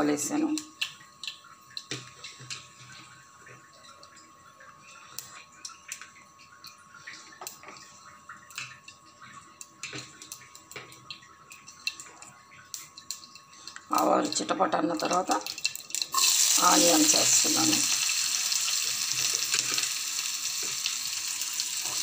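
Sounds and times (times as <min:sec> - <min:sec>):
seeds sizzling in hot oil: 0:15.0 - 0:22.0.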